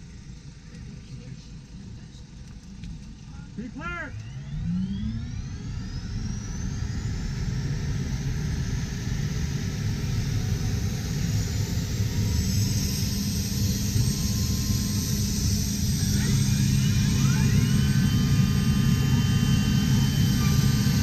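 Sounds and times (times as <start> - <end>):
helicopter turbine whine: 0.0 - 21.0.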